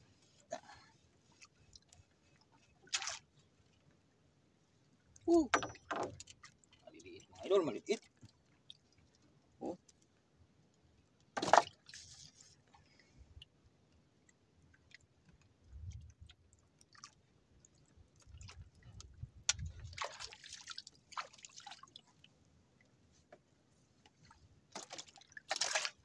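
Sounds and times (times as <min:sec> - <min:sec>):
water splashing: 0:02.9 - 0:03.3, 0:19.6 - 0:22.1, 0:24.8 - 0:26.0.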